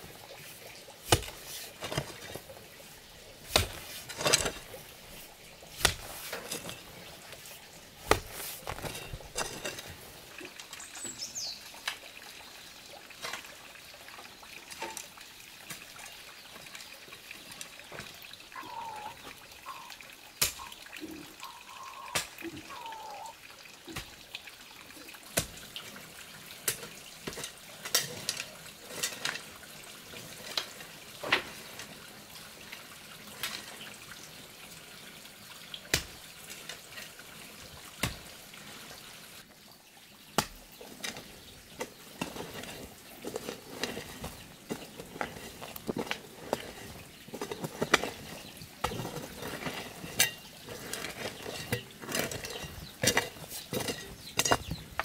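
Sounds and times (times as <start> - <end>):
dirt crumbling and scraping: 0.0 - 12.0, 26.6 - 32.0, 40.3 - 55.0
hoe chopping into soil: 1.1 - 2.3, 3.4 - 4.7, 5.8 - 6.8, 8.0 - 9.8.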